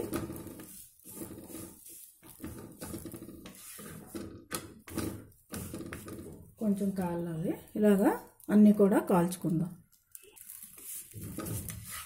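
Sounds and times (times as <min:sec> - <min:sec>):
spatula scraping on griddle: 0:00.0 - 0:06.4, 0:10.8 - 0:12.0.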